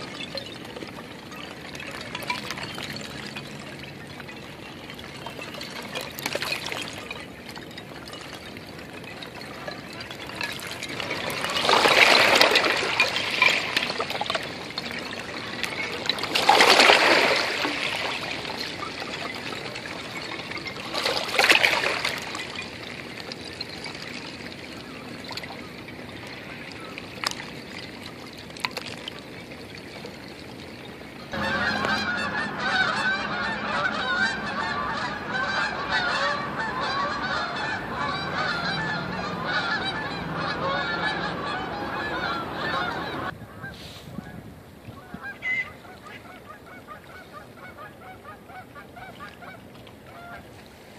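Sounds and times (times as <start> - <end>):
ice clinking against stone: 0.0 - 31.0
small waves washing over rocks: 0.0 - 31.4
geese honking: 31.3 - 43.9, 45.0 - 50.5.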